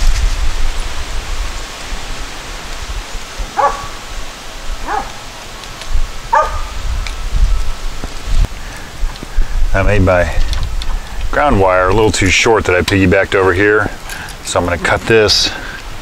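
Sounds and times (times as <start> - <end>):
steady hiss and low rumble: 0.0 - 16.0
dog barking: 3.5 - 4.0, 4.8 - 5.2, 6.3 - 6.7.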